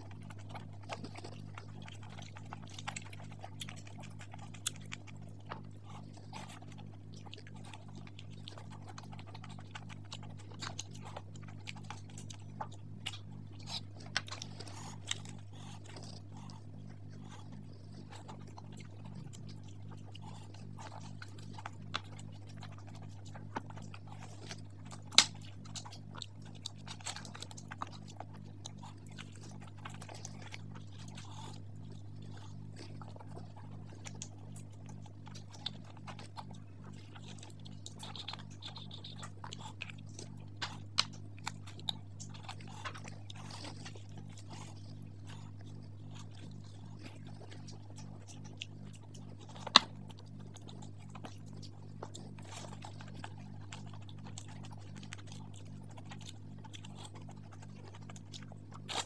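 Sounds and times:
low steady hum: 0.0s - 59.0s
wet chewing and lip-smacking: 0.0s - 59.0s
sticky clicks and squelches: 0.1s - 46.7s.

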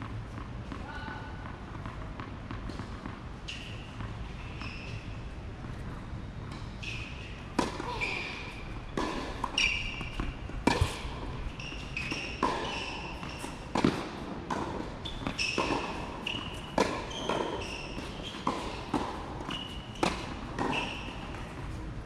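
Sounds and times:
tennis balls struck by rackets: 5.6s - 21.8s
short high squeaks: 6.8s - 8.6s, 9.4s - 10.2s, 11.5s - 13.6s, 15.0s - 18.8s, 19.5s - 21.3s.

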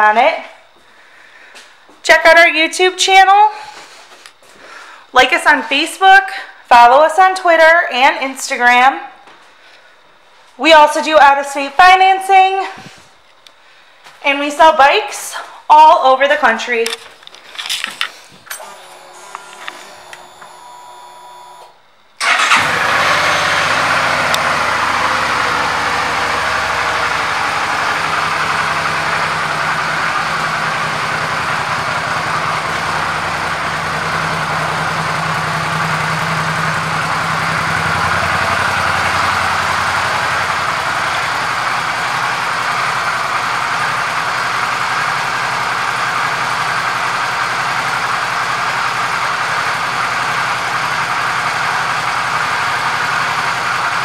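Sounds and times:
motorcycle engine idling: 22.2s - 54.0s.

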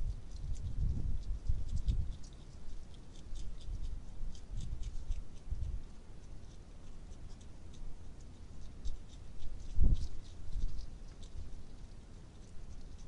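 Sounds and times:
hedgehogs crunching dry food: 0.0s - 13.0s
low uneven rumble: 0.0s - 13.0s.

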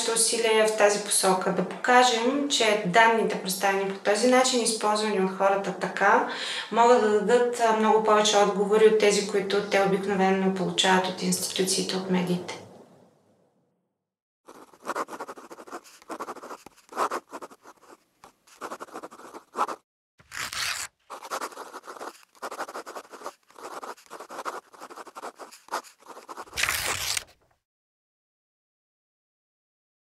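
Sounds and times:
pen scratching on paper: 14.5s - 27.2s.

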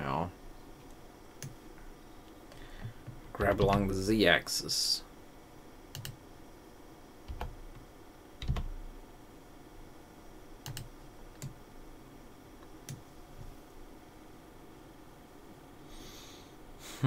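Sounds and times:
keyboard key presses: 8.4s - 8.7s
mouse clicks: 10.6s - 11.6s.

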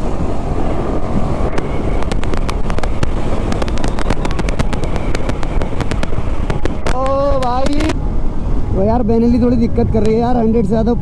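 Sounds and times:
road rumble: 0.0s - 11.0s
wind buffeting microphone: 0.0s - 11.0s
motorcycle engine: 1.4s - 7.9s
sharp crackles: 1.4s - 8.0s.

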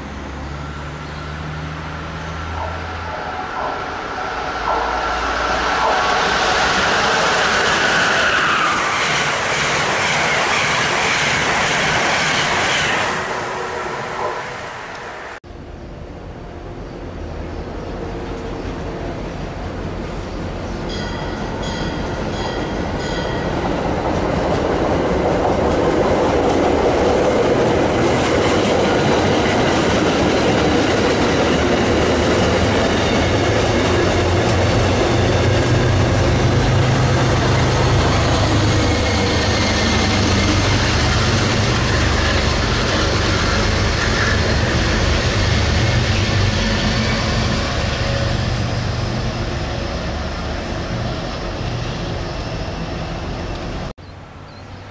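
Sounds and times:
diesel locomotive drone: 0.0s - 54.9s
train wheels clacking over rails: 21.7s - 48.2s.

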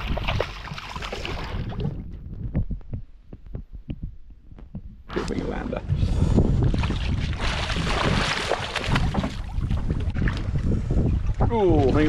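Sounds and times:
fish splashing water: 0.0s - 2.0s, 6.8s - 10.4s
soft knocks and low thumps: 1.6s - 8.1s, 8.8s - 11.8s.

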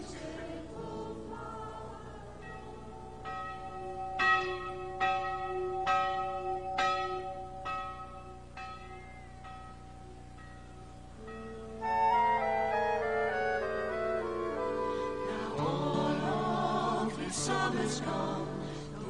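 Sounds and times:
church bell ringing: 2.4s - 12.9s.

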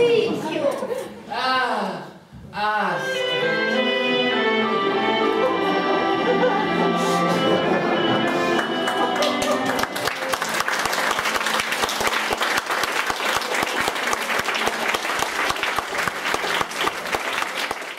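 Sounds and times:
closing music: 3.2s - 15.2s
audience applauding: 7.9s - 17.9s.

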